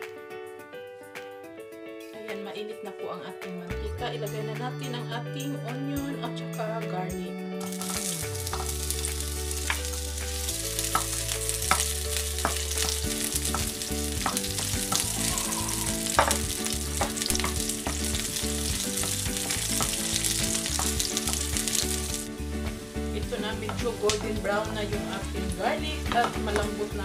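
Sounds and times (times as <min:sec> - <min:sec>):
onion and garlic sizzling in oil: 0:07.6 - 0:27.0.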